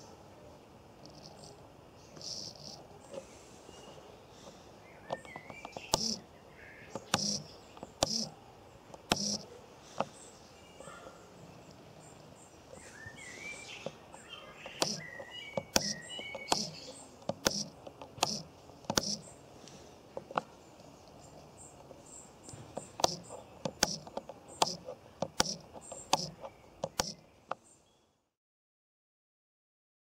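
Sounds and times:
birds chirping: 1.0 - 28.2
small servo whirring: 2.2 - 2.9, 5.7 - 6.2, 7.0 - 8.4, 9.0 - 9.4, 14.8 - 19.3, 23.0 - 27.2
toggle switch clicks: 5.1 - 6.2, 6.9 - 8.3, 8.9 - 9.4, 14.7 - 19.3, 22.9 - 27.2.

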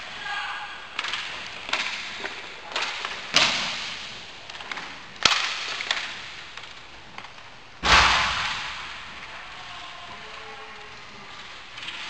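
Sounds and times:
hockey sticks cracking: 0.9 - 8.0.

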